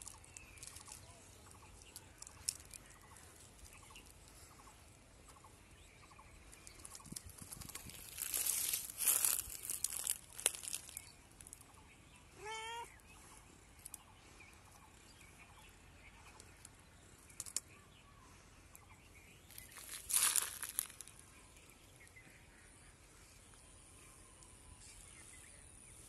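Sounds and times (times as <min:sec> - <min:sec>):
rustling scrabble on bark: 0:00.0 - 0:05.5, 0:06.1 - 0:11.8, 0:19.5 - 0:21.2
cat call: 0:12.4 - 0:13.0.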